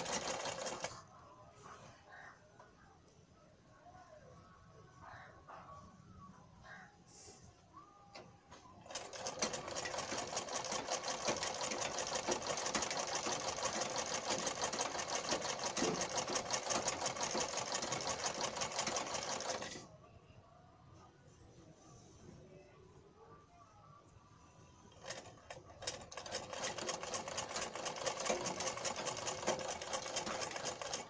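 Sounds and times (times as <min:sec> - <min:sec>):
sewing machine clattering: 0:00.0 - 0:01.0, 0:08.8 - 0:19.8, 0:25.0 - 0:31.0.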